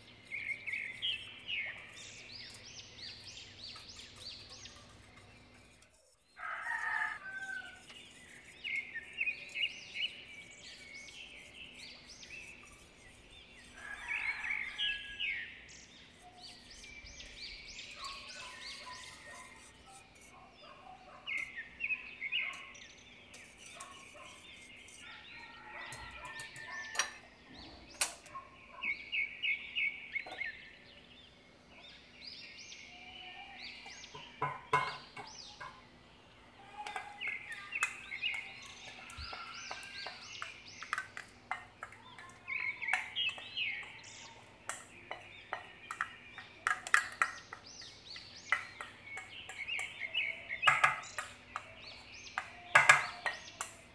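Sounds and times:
birds chirping and trilling: 0.0s - 53.9s
sharp clinks and knocks: 34.1s - 35.8s, 50.6s - 51.7s.

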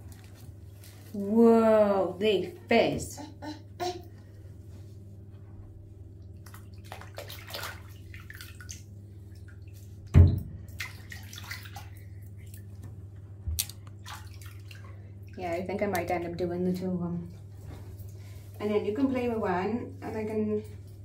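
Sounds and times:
steady low hum: 0.0s - 21.0s
bathwater splashing and dripping: 6.1s - 18.5s.

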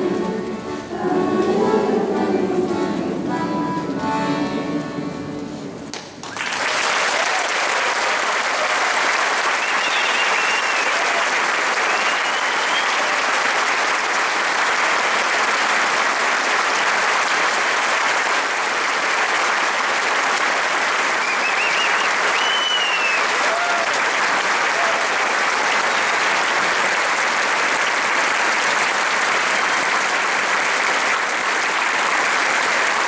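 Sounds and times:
accordion and string orchestra: 0.0s - 5.8s
audience applauding: 5.9s - 33.0s.

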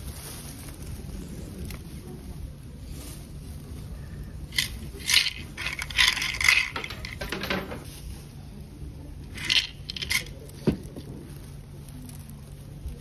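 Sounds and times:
wooden sticks rattling in box: 4.5s - 7.9s, 9.3s - 11.2s.

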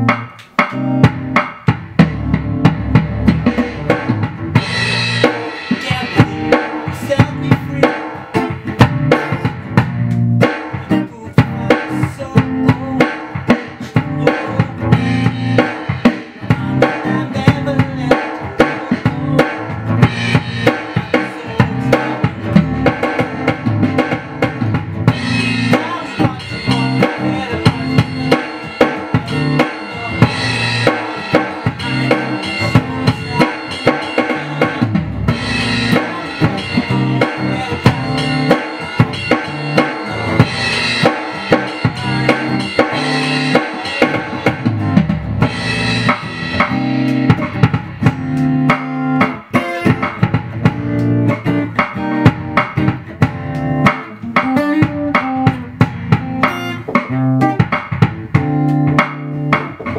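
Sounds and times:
acoustic guitar strumming chords: 0.0s - 59.9s
electronic hand percussion drum beat: 0.0s - 59.9s.

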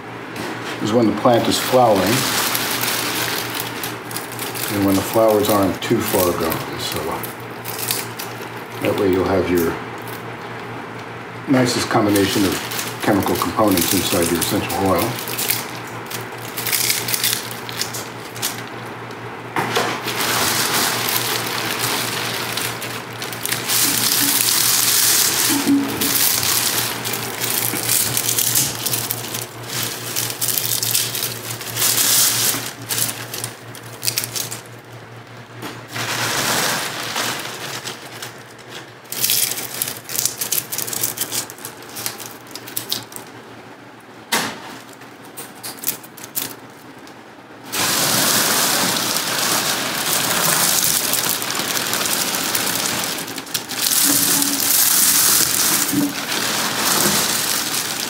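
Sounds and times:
dry leaves crackling and rustling: 0.8s - 10.3s, 11.6s - 19.1s, 19.7s - 34.9s, 35.9s - 43.3s, 45.6s - 46.9s, 47.7s - 58.0s
stems snapping: 1.6s - 9.2s, 12.2s - 19.2s, 20.0s - 34.7s, 37.2s - 43.3s, 44.8s - 47.2s, 49.9s - 58.0s.

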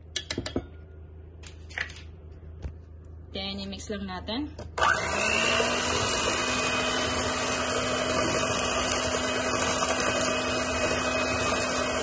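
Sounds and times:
electric hand mixer whining: 4.8s - 12.0s.

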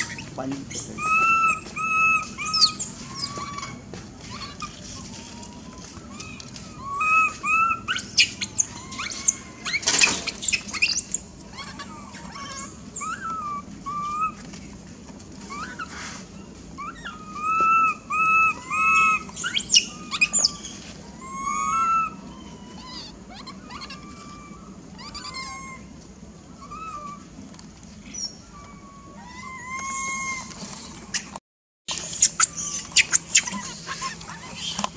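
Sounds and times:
shrill squealing screams: 0.0s - 4.7s, 5.4s - 14.4s, 16.8s - 25.9s, 28.1s - 34.8s
coo-like monkey calls: 0.0s - 14.7s, 15.4s - 27.3s, 28.0s - 34.9s
faint squeaks: 0.0s - 14.7s, 26.6s - 34.9s.

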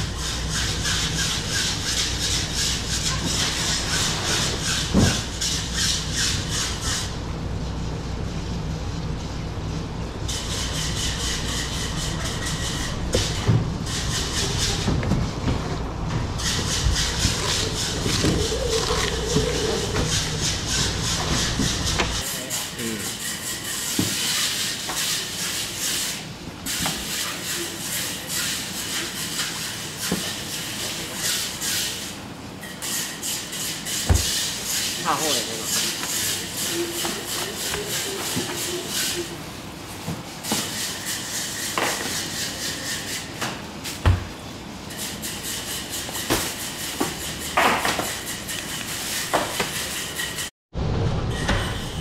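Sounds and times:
steady low hum: 0.0s - 22.3s.

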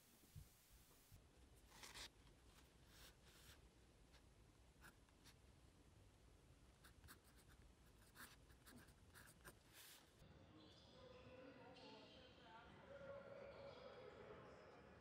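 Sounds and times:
pen scratching on paper: 6.8s - 10.0s.

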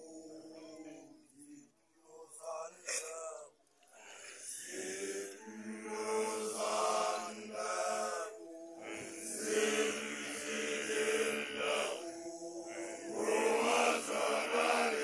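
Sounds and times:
low vocal drone: 0.0s - 3.2s, 4.0s - 15.0s
young men chanting together: 4.0s - 15.0s.

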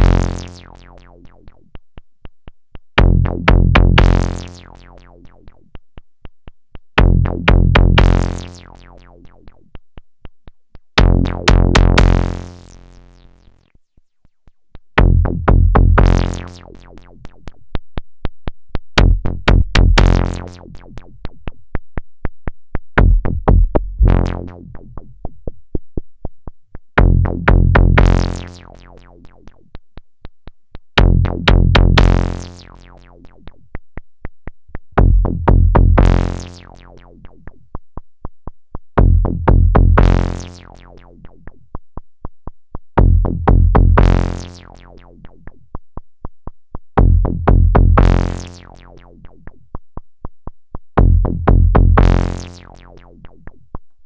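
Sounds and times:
bass-heavy synthesizer note: 0.0s - 1.6s, 3.0s - 5.6s, 7.0s - 9.6s, 11.0s - 13.7s, 15.0s - 17.4s, 19.0s - 21.3s, 23.0s - 25.3s, 27.0s - 29.6s, 31.0s - 33.4s, 35.0s - 37.3s, 39.0s - 41.3s, 43.0s - 45.4s, 47.0s - 49.4s, 51.0s - 53.4s.

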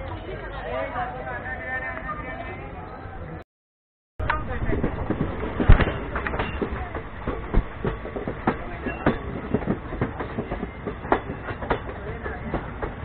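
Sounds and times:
train running rumble: 4.2s - 13.0s
train wheels clicking over rail joints: 4.2s - 13.0s.

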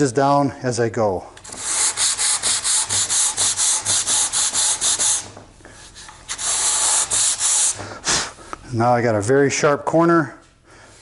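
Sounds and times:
sandpaper scrubbing: 1.5s - 7.8s.

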